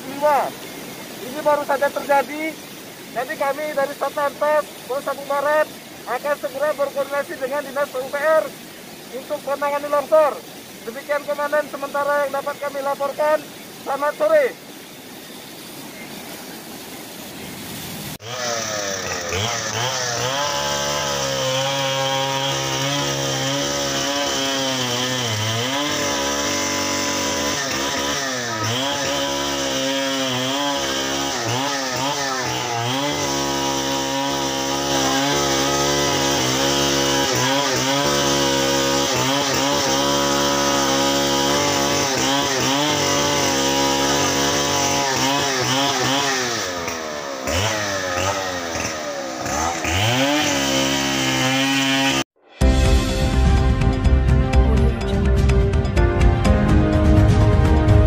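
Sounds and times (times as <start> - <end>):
chainsaw cutting wood: 18.2 - 54.0.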